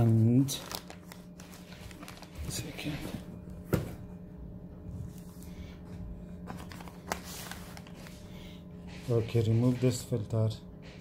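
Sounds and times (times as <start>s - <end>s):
plastic bags crinkling: 0.0s - 3.0s
steady low hum: 0.0s - 11.0s.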